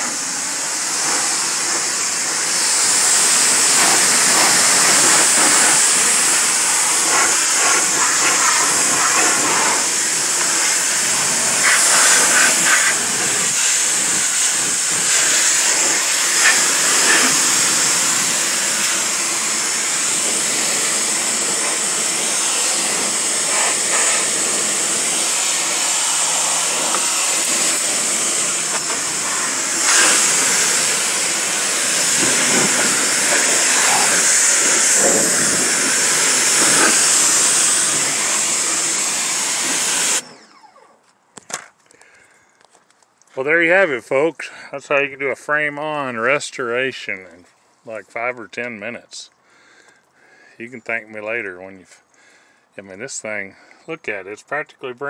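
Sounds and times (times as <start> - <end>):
pressure washer jet hissing: 0.0 - 40.8.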